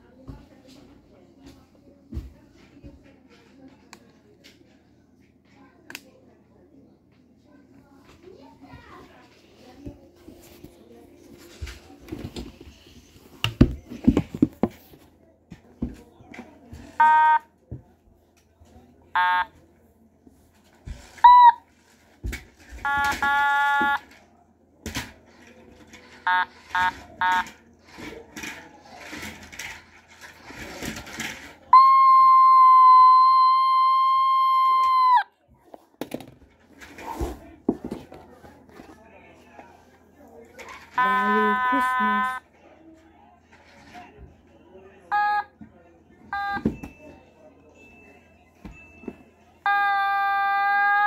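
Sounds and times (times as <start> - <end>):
handling knocks and rustles: 8.2 - 16.7, 36.0 - 39.1.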